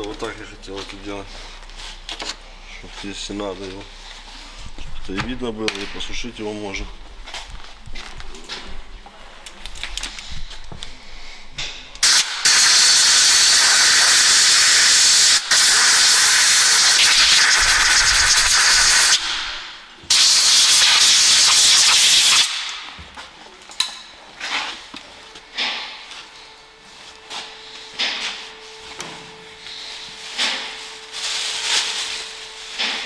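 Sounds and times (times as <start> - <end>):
compressed air blow gun hissing: 12.0 - 22.7.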